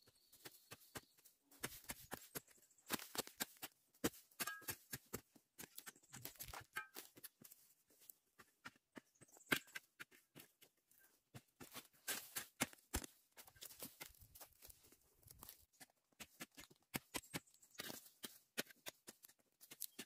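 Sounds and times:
hoe scraping soil: 0:11.6 - 0:12.6.

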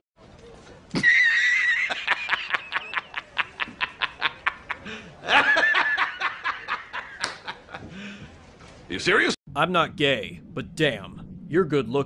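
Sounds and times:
man laughing hard: 0:01.0 - 0:07.8.

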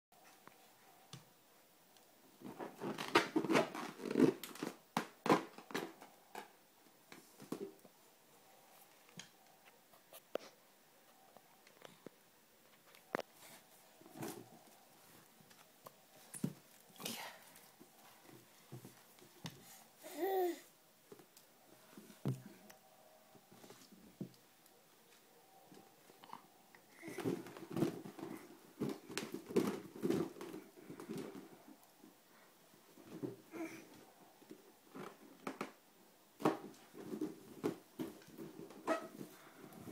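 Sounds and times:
balloon squeaking and bumping: 0:38.7 - 0:39.3.

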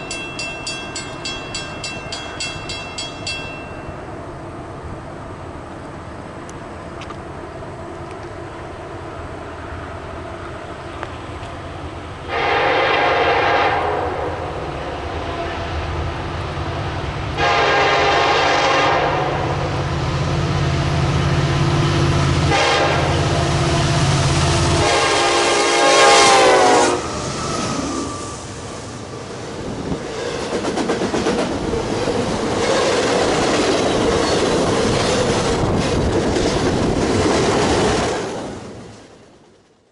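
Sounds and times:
train wheels clattering on rails: 0:00.0 - 0:04.0, 0:29.7 - 0:39.2
locomotive horn blasts: 0:12.3 - 0:14.5, 0:17.4 - 0:19.5, 0:22.5 - 0:24.0, 0:24.6 - 0:27.2.

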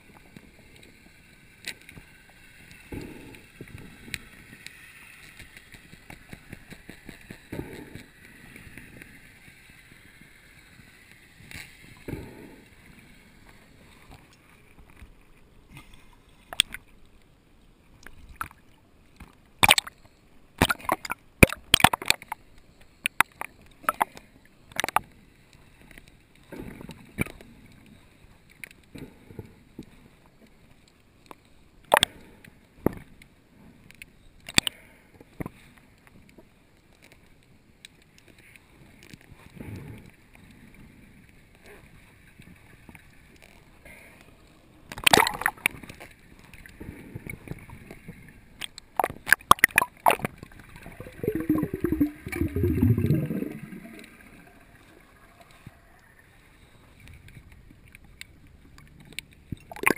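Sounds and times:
underwater hiss with crackling: 0:00.0 - 0:15.0, 0:38.0 - 0:58.2
water splashes: 0:18.0 - 0:20.0, 0:20.6 - 0:22.4, 0:44.9 - 0:57.1, 0:57.8 - 0:59.9.

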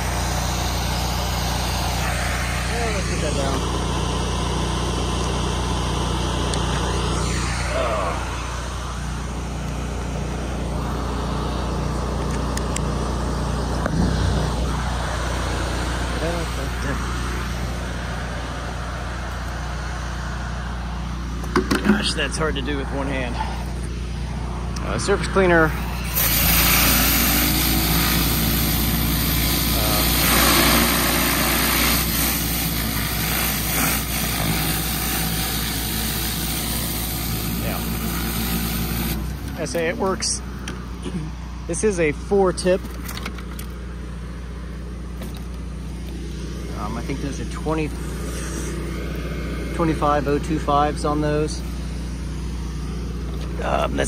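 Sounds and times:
pressure washer engine running: 0:00.0 - 0:54.0
high-pressure spray hissing: 0:25.9 - 0:39.3.

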